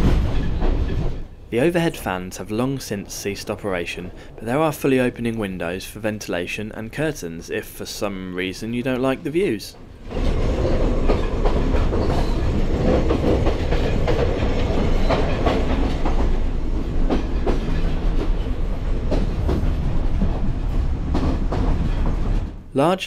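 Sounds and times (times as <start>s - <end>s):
train carriage rumbling and rattling: 0.0s - 22.9s
wheels clicking on rails: 10.0s - 22.6s.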